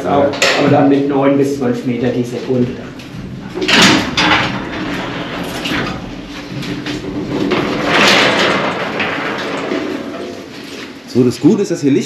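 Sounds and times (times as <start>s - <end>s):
metal gates rattling open: 3.2s - 11.0s.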